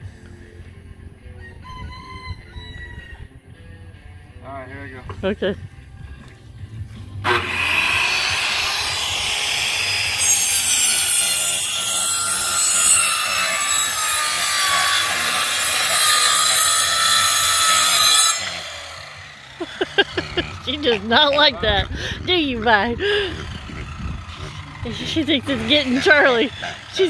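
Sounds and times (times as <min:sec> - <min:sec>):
circular saw cutting wood: 0:07.2 - 0:27.0.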